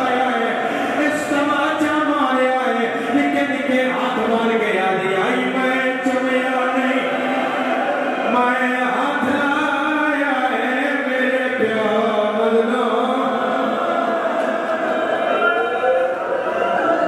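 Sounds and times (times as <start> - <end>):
man chanting through microphone: 0.0 - 7.4, 8.2 - 14.0.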